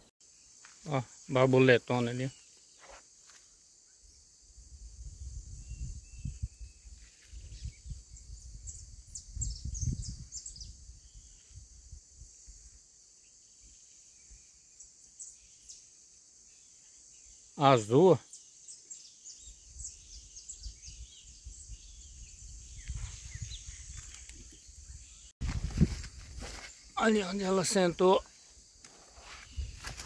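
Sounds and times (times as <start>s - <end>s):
bird chirps: 16.6s - 25.3s.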